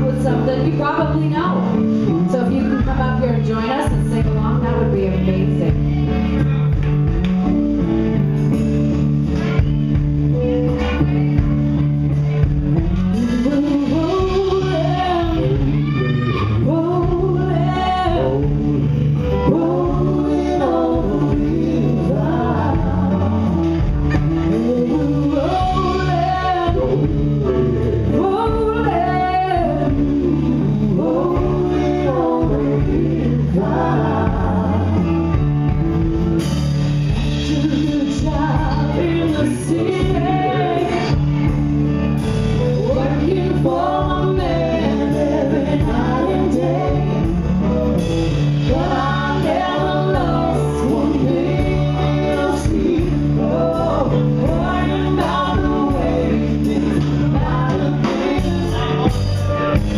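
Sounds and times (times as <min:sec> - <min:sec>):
woman singing lead: 0:00.0 - 0:06.6, 0:10.4 - 0:36.1, 0:37.0 - 0:59.9
drums: 0:00.0 - 0:59.9
guitar: 0:00.0 - 0:59.9
men singing backing: 0:13.0 - 0:35.6, 0:42.6 - 0:59.9.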